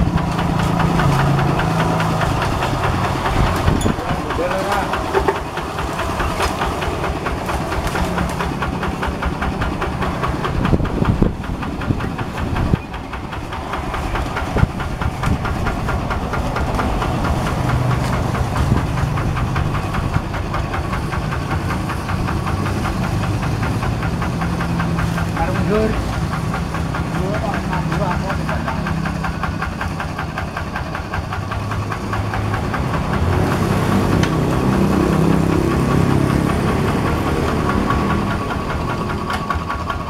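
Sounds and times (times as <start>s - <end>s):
diesel engine knocking clatter: 0.0s - 40.0s.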